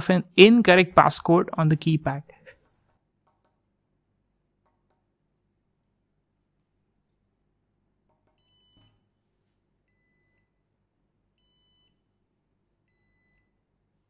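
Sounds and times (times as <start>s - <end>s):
electronic buzzer beeps: 8.4s - 9.0s, 9.9s - 10.5s, 11.4s - 12.1s, 12.9s - 13.6s.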